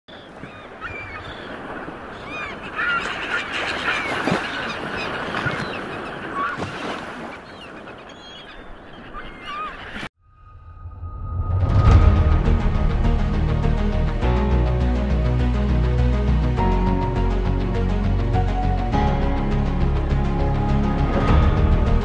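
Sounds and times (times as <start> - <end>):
flock of birds calling: 0.1 - 10.1.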